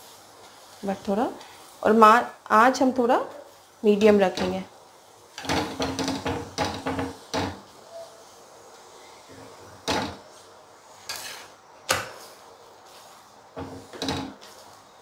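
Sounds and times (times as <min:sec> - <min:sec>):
metal spatula scraping a hot pan: 0:11.0 - 0:11.6.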